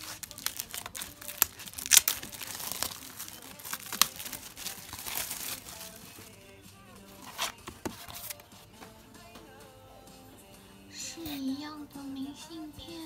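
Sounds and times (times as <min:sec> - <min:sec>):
plastic shrink-wrap crinkling: 0:00.0 - 0:08.4.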